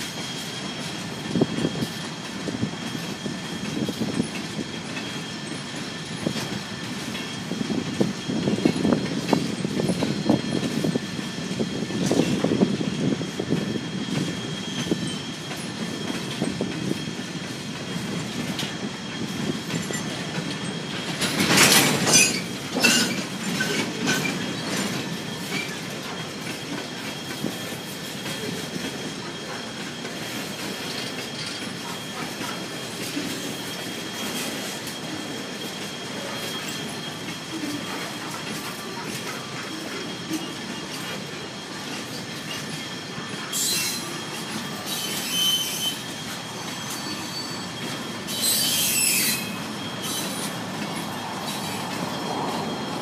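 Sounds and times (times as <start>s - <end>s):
wheels clacking over rail joints: 0.0s - 53.0s
high-pitched wheel squeal: 39.7s - 53.0s.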